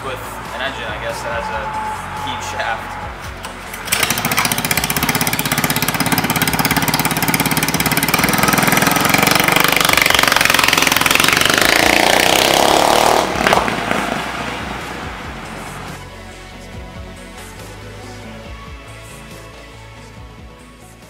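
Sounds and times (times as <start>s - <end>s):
small engine revving: 3.7s - 16.0s.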